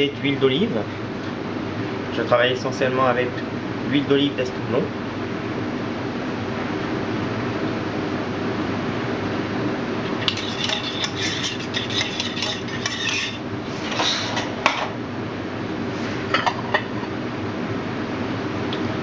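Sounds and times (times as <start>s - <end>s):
steady background hum: 0.0s - 19.0s
metal spoon scraping saucepan: 10.2s - 14.5s.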